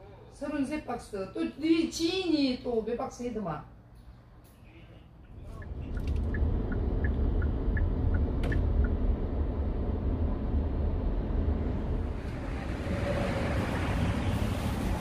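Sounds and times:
car interior road rumble: 5.3s - 13.6s.

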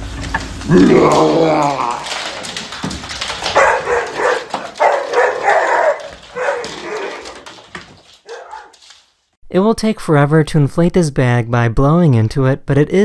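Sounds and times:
dog paws clicking on wooden floor: 0.0s - 9.4s
dog barking and yelping: 3.4s - 7.6s, 8.2s - 8.8s.

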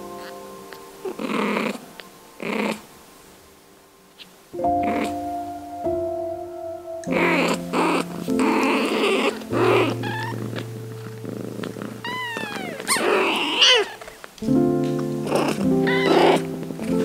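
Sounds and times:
cat purring: 0.0s - 3.0s, 4.1s - 5.3s, 7.0s - 17.0s
soft background music: 0.0s - 17.0s
kitten mews: 7.1s - 10.6s, 12.0s - 14.2s, 15.3s - 16.5s
cat licking kittens: 7.2s - 14.4s.

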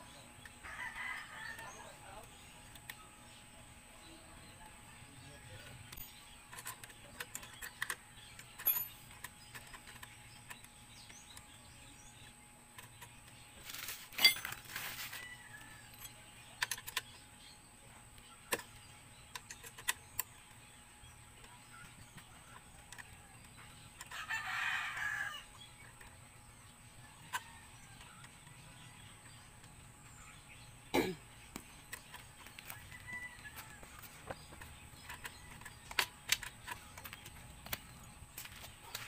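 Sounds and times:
rooster crowing: 0.6s - 1.9s, 24.1s - 25.5s, 32.7s - 34.1s
metallic tool clicks and clinks: 5.9s - 10.0s, 14.2s - 14.6s
metal clank: 14.2s - 14.6s.

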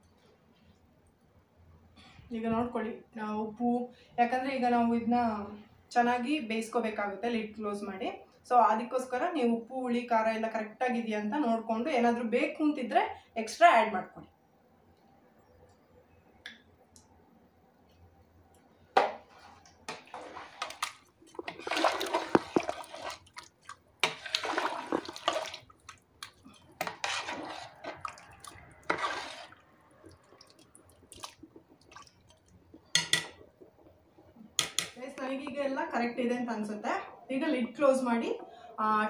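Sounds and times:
water sloshing in a pot: 19.0s - 34.9s.

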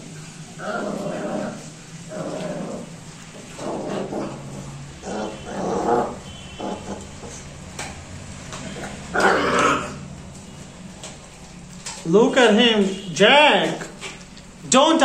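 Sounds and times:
puppies growling: 0.0s - 7.6s, 8.5s - 10.1s.

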